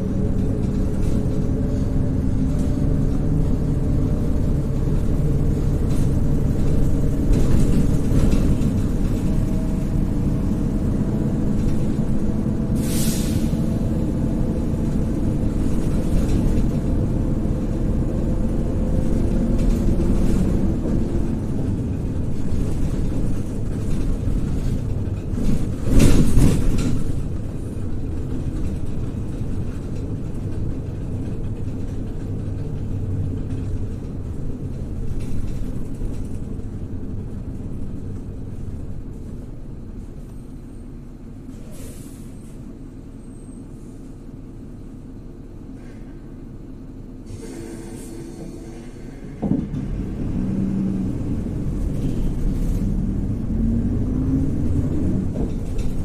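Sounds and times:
bus engine and road rumble: 0.0 - 56.0
short hiss: 12.8 - 13.6
brief burst of noise: 47.3 - 49.7.

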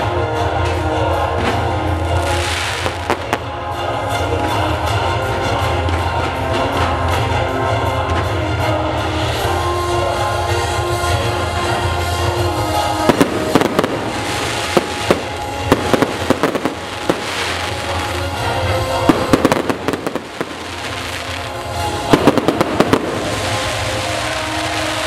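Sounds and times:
steady hiss: 12.6 - 25.0.

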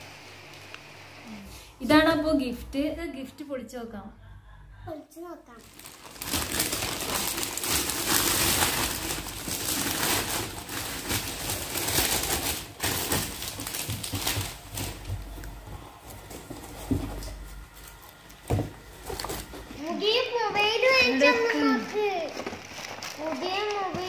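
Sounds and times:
wrapping paper ripping and crumpling: 5.6 - 16.9, 20.8 - 24.0.

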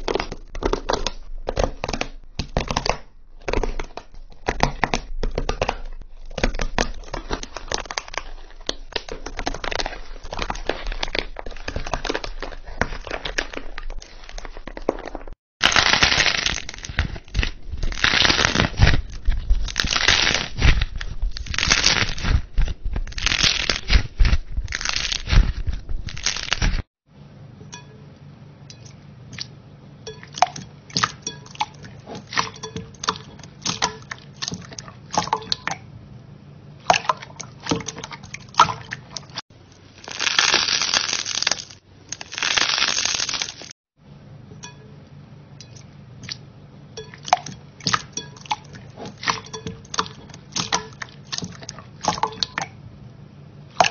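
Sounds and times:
stress balls crackling: 0.0 - 26.8.

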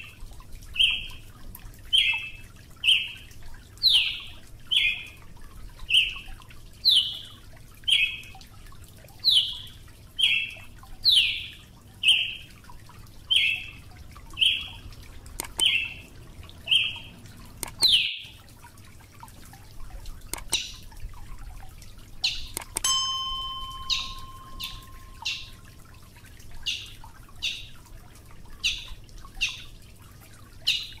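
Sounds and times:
bird calling short sharp notes: 22.3 - 25.6.

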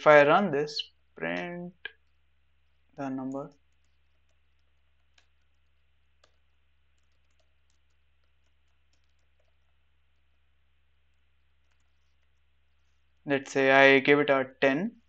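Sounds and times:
typing on computer keyboard: 3.6 - 10.3, 11.1 - 12.4.

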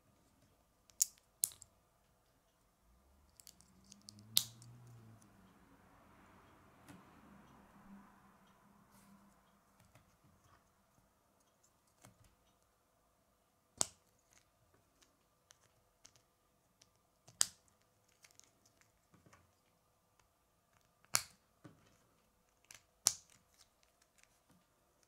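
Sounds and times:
plastic pieces clicking: 0.9 - 1.7
plastic pieces snapping together: 21.0 - 21.4, 22.6 - 24.3.

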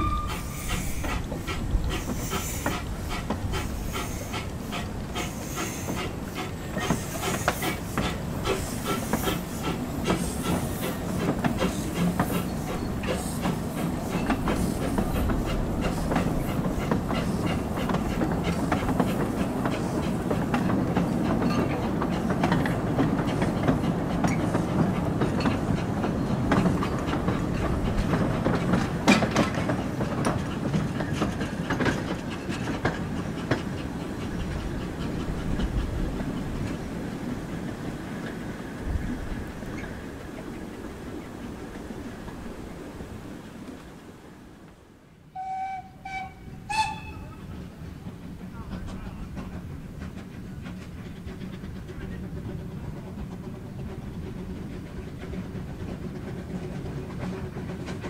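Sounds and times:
steam hissing: 0.0 - 21.4
train wheels clicking on rail joints: 0.0 - 42.7, 45.4 - 58.0
train rumble: 0.0 - 58.0.

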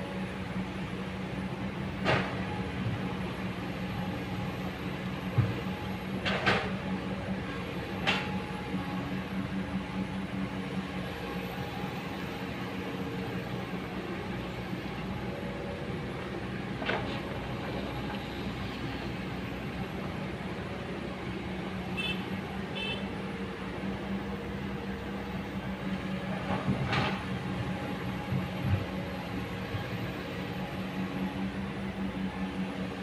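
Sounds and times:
excavator diesel engine running: 0.0 - 33.0.

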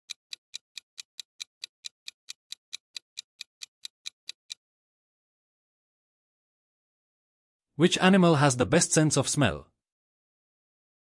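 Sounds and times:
clock ticking: 0.0 - 4.6.

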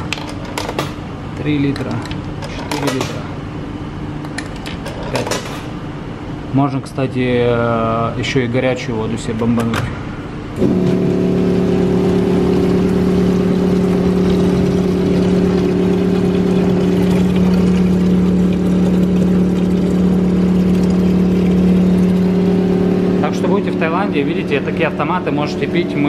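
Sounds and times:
vending machine humming: 0.0 - 26.0
water pouring into plastic bottle: 11.1 - 23.4.

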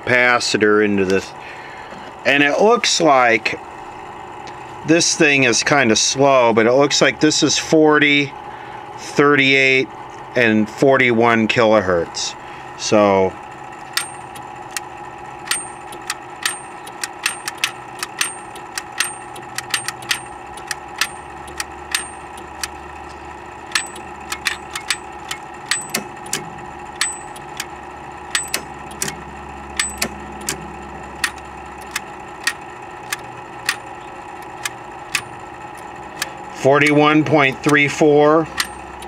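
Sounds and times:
remote control clicks with ringing: 13.9 - 22.8, 23.6 - 39.0.

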